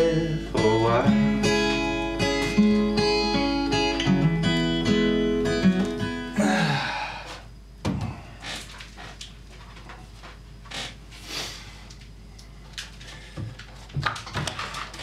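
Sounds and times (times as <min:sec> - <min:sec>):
person breathing hard: 0:06.4 - 0:08.4, 0:11.2 - 0:13.6.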